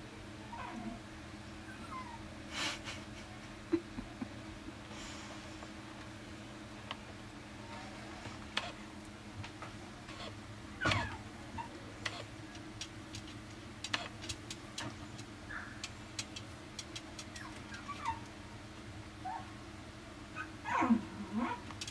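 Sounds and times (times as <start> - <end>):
steady low hum: 0.0 - 21.9
puppy whimpering: 0.4 - 1.0, 1.6 - 2.3, 17.2 - 18.4, 20.4 - 21.6
light clicks and taps: 12.0 - 17.7.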